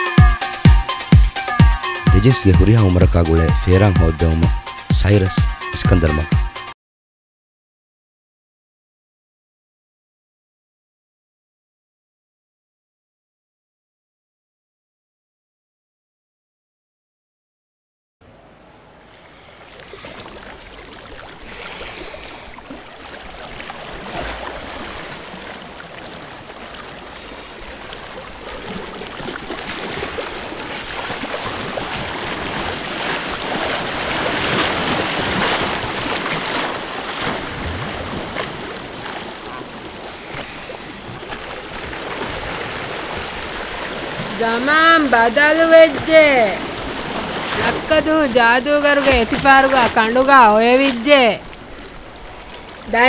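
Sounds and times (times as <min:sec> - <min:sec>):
rushing water noise: 0:00.0 - 0:06.7, 0:18.2 - 0:53.0.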